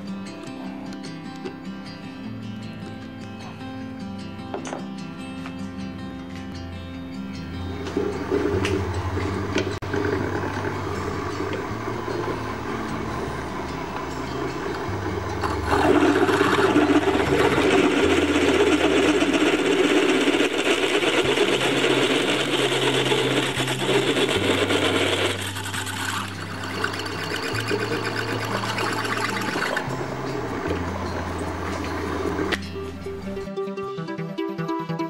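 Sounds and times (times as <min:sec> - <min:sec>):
motor hum: 0:07.4 - 0:33.5
milling cutter grinding steel: 0:07.8 - 0:33.4.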